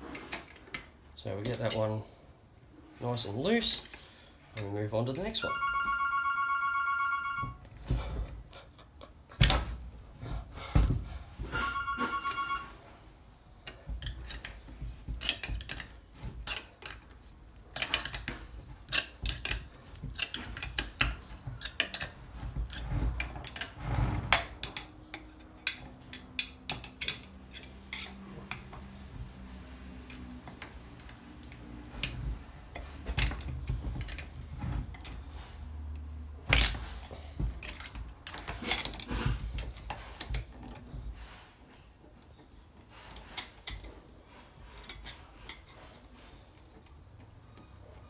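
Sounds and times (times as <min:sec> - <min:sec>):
spanner clicking on metal bolts: 0:00.1 - 0:01.8, 0:17.7 - 0:28.6
pulsing two-tone electronic ring: 0:05.4 - 0:07.6, 0:11.5 - 0:12.8.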